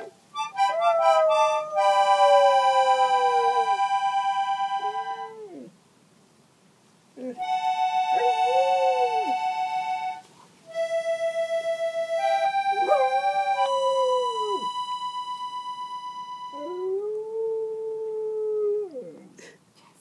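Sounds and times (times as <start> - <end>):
dog howling: 0.0 - 3.8, 8.2 - 9.4, 12.3 - 14.7, 16.5 - 19.2
accordion chords: 0.0 - 5.3, 7.4 - 16.6.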